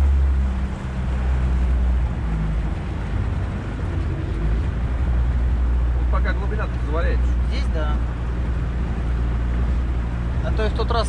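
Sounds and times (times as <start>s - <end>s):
outboard motor humming: 0.0s - 11.0s
water rushing past boat: 0.0s - 11.0s.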